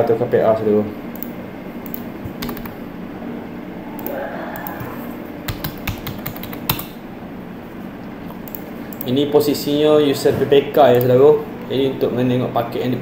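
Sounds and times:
steady low hum: 0.0s - 13.0s
keyboard keys clicking: 1.2s - 2.8s, 4.0s - 6.9s, 8.3s - 9.1s.

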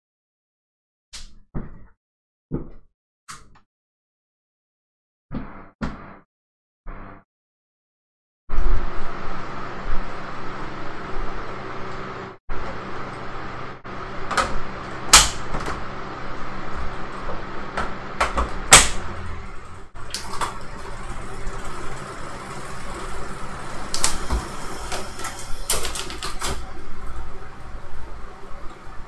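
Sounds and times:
bike trainer hum: 8.6s - 29.0s.

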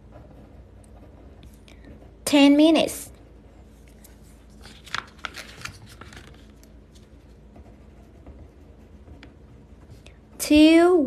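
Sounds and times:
pen writing on paper: 7.2s - 10.0s.

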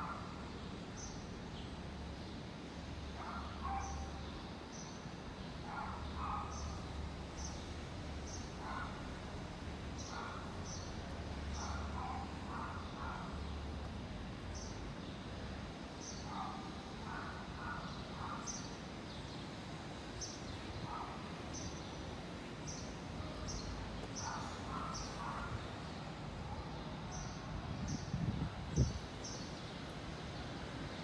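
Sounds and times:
birds chirping: 3.0s - 7.7s, 20.2s - 29.7s.

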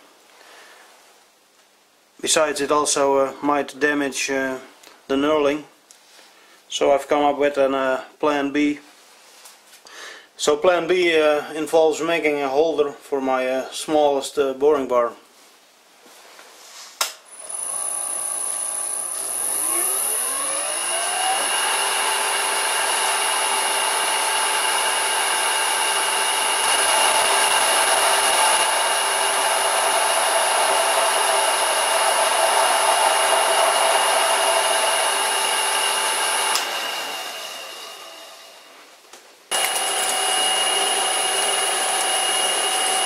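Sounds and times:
drill cutting steel hiss: 17.3s - 38.7s, 39.5s - 43.0s
electric motor whine: 17.3s - 38.7s, 39.5s - 43.0s.

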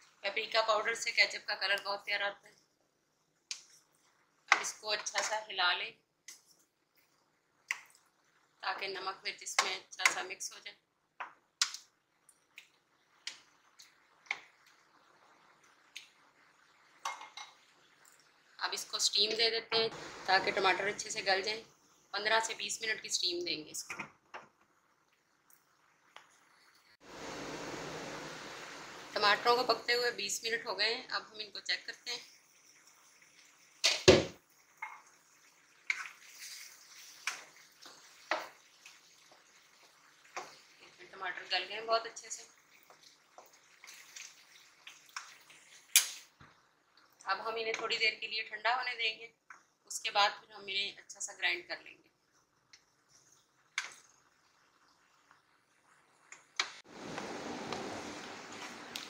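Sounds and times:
spatula scraping a pan: 35.8s - 39.4s.

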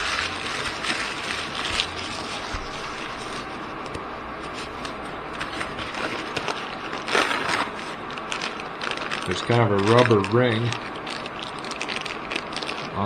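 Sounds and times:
plastic packaging crinkling: 0.0s - 3.6s, 4.6s - 13.0s.

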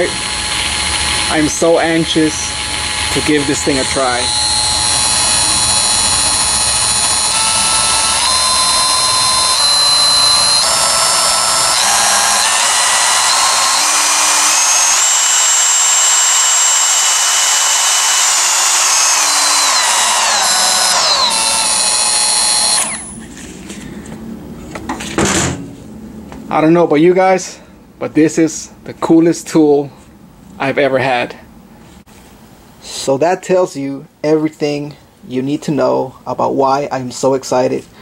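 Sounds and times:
electric die grinder whining: 0.0s - 23.2s.

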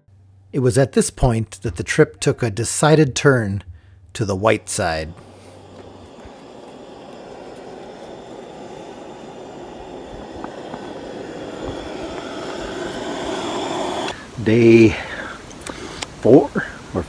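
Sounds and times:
gas stove burner hissing: 4.2s - 14.9s.

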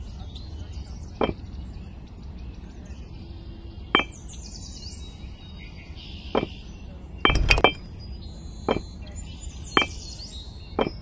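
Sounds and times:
clay bricks clicking: 10.8s - 11.0s.

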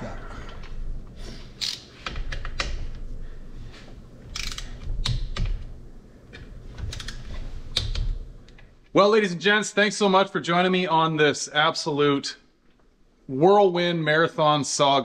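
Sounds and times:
torque wrench ratcheting and clicking: 4.4s - 4.8s.

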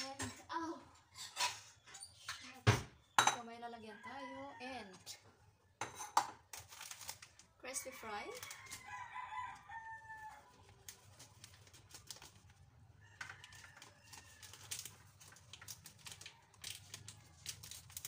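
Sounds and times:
plastic packet rustling: 6.6s - 9.1s, 10.5s - 18.0s
rooster crowing faintly: 7.9s - 11.3s, 12.9s - 15.3s.

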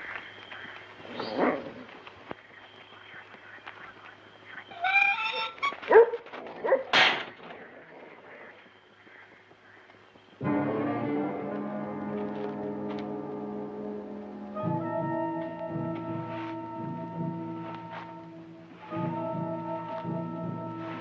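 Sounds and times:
dog barking: 5.8s - 7.0s.

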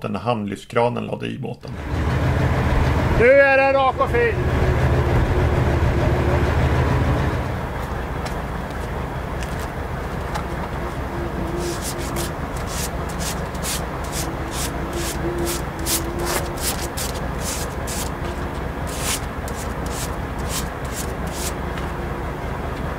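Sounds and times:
crane engine running: 1.7s - 22.9s
sandpaper rubbing by hand: 11.4s - 21.6s.

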